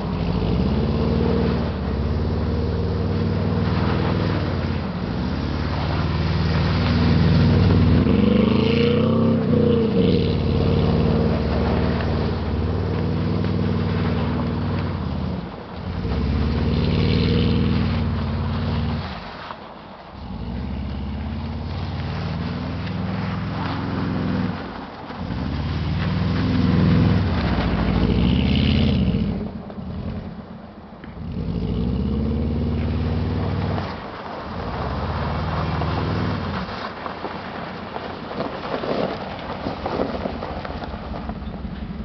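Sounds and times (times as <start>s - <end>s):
car engine running low: 0.0s - 19.3s, 20.1s - 42.0s
car engine revving hard: 5.6s - 19.1s, 25.2s - 29.5s.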